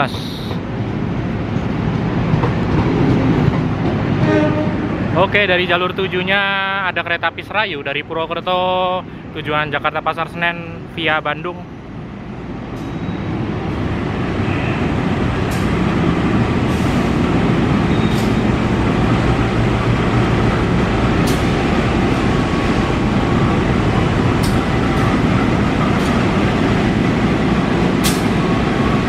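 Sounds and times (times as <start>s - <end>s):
diesel locomotive engine running: 0.0s - 29.0s
steel wheels on rails: 12.7s - 29.0s.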